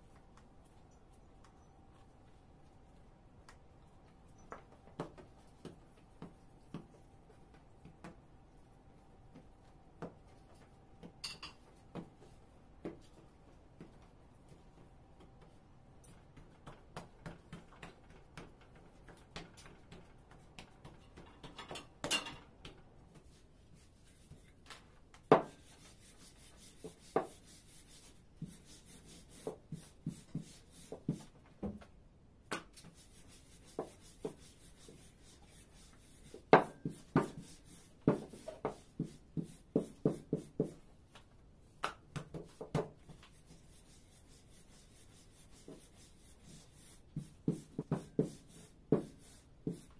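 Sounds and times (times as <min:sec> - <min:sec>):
hands tapping dough: 0:04.5 - 0:08.3, 0:16.2 - 0:21.6, 0:36.4 - 0:43.4
rolling pin rubbing dough: 0:32.8 - 0:40.8, 0:42.2 - 0:49.9.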